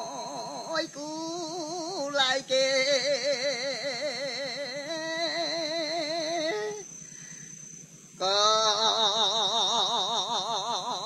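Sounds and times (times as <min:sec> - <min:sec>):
man chanting with vibrato: 0:00.0 - 0:07.1, 0:08.2 - 0:11.0
high-pitched whine: 0:00.0 - 0:11.0.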